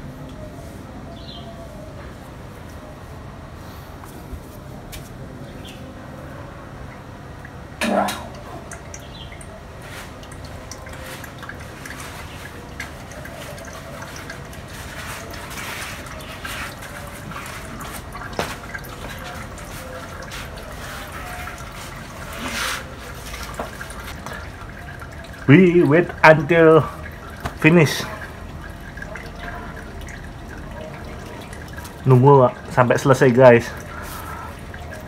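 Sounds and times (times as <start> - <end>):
oil trickling into a plastic pan: 8.3 - 35.0.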